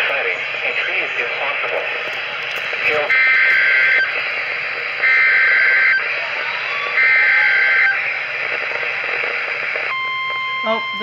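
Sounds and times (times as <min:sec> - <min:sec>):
radio static: 0:00.0 - 0:11.0
two-tone data warble: 0:02.6 - 0:11.0.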